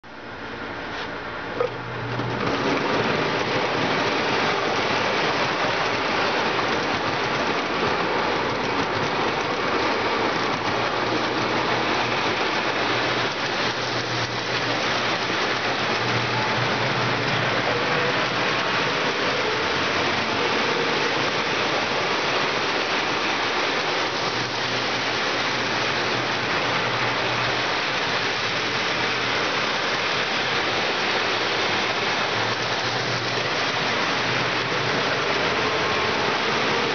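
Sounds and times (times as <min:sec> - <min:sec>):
toy trains rolling on track: 0:02.0 - 0:36.9.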